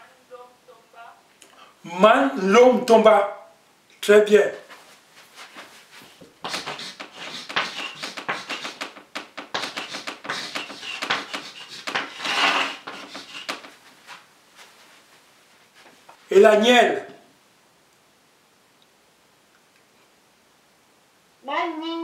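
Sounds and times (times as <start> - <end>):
chalk tapping and scratching: 4.7 - 14.9.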